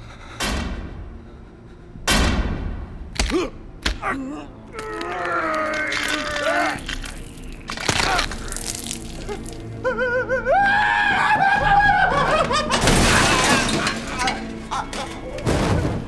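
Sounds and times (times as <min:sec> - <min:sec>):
film music: 0:00.0 - 0:16.0
laughter: 0:11.2 - 0:12.8.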